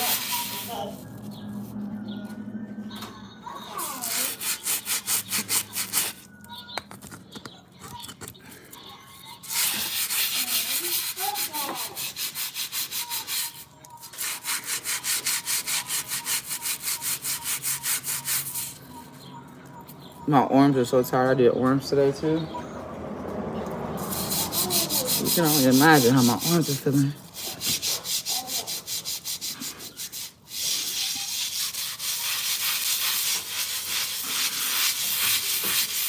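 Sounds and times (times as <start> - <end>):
hand scrubbing on floor: 0.0 - 1.8, 3.8 - 6.2, 9.4 - 18.8, 24.0 - 36.0.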